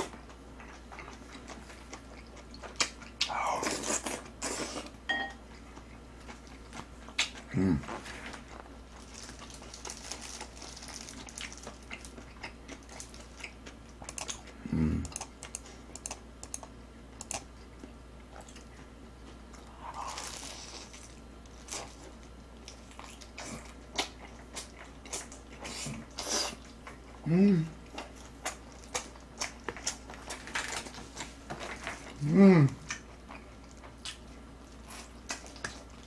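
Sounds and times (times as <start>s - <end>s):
chewing and crunching: 0.0s - 36.0s
person humming: 7.5s - 7.9s, 14.6s - 15.2s, 27.2s - 27.8s, 32.2s - 32.9s.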